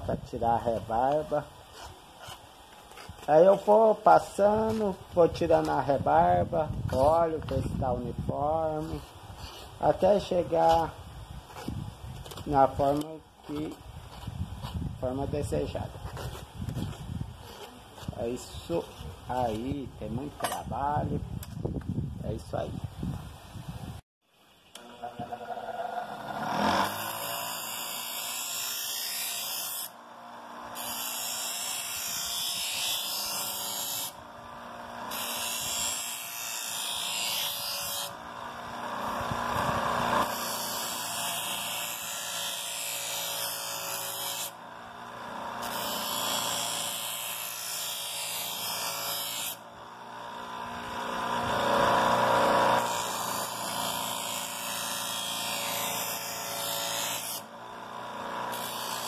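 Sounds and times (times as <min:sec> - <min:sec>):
grinder motor running: 0:24.8 - 0:59.0.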